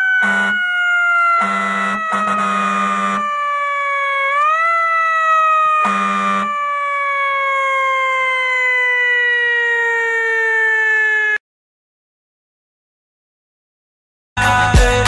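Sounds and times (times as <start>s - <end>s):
police siren wailing: 0.0s - 11.4s
buzzing horn blast: 0.2s - 0.7s, 1.4s - 3.4s, 5.8s - 6.6s.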